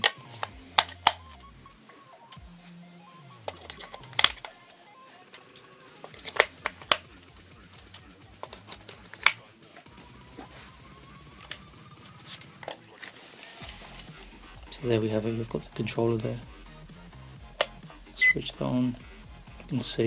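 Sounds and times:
plastic clicks and taps: 0:06.0 - 0:09.4.

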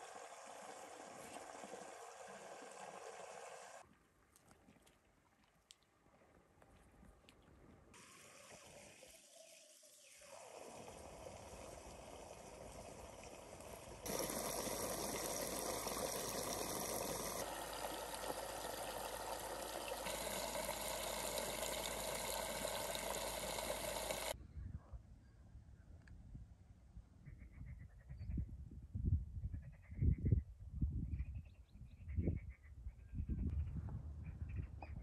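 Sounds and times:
water pouring and splashing: 0:00.0 - 0:05.8, 0:08.0 - 0:24.4.

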